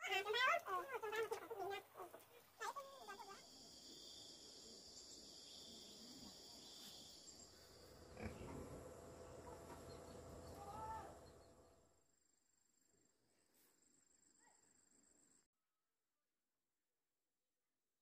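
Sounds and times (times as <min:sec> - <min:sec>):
high insect buzz: 0:02.6 - 0:09.3.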